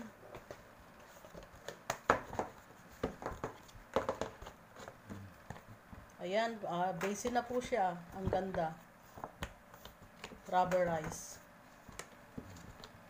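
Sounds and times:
plastic board clicking and knocking: 1.6 - 4.6.

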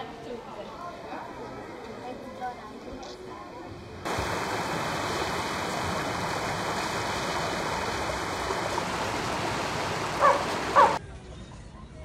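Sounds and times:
steady rushing noise: 4.1 - 11.0.

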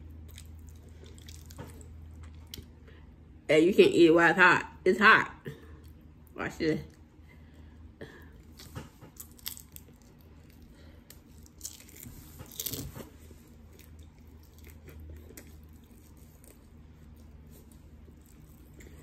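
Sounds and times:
chewing crispy chicken crunches: 0.0 - 2.7, 8.3 - 19.0.

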